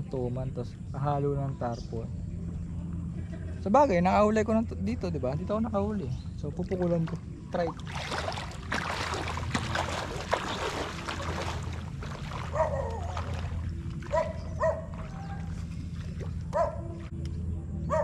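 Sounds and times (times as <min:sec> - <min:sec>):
wading through water: 0:06.0 - 0:17.2
dog barking: 0:12.5 - 0:13.3, 0:14.1 - 0:15.5, 0:16.5 - 0:16.9.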